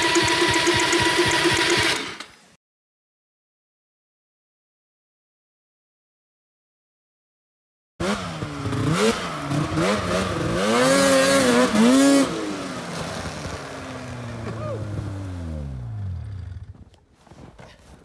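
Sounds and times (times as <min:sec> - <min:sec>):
snowmobile engine revving: 0:08.0 - 0:16.8.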